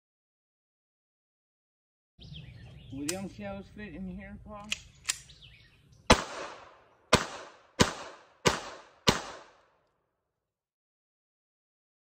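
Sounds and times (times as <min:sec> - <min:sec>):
handgun shots echoing: 0:06.1 - 0:09.8.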